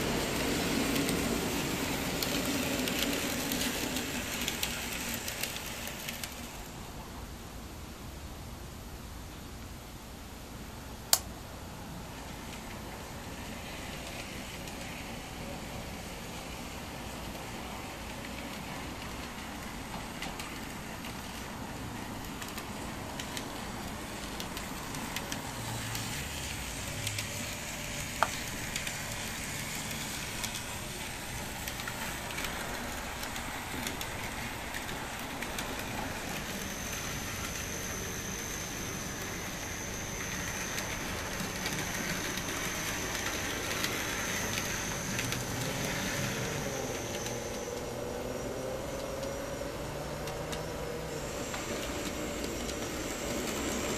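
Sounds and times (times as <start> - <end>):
model trams running on track: 0.0 - 7.3, 11.1 - 53.9
thin high whine: 18.6 - 53.9.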